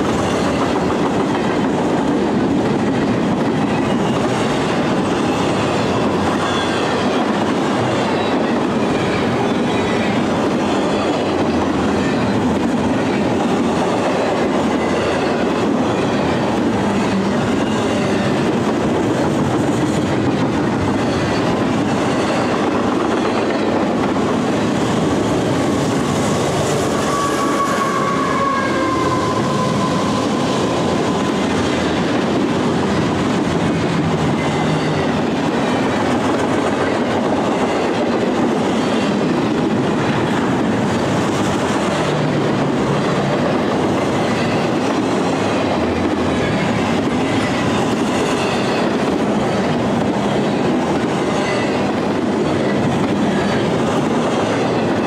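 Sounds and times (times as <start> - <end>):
train wheels rumbling on rails: 0.0 - 55.0
faint squealing: 26.9 - 31.4.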